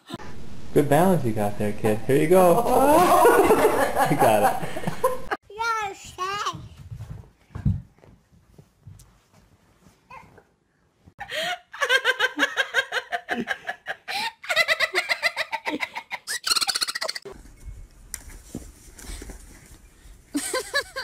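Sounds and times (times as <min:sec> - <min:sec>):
low rumble: 0:00.2 - 0:05.3
person laughing hard: 0:02.4 - 0:05.4, 0:20.4 - 0:21.0.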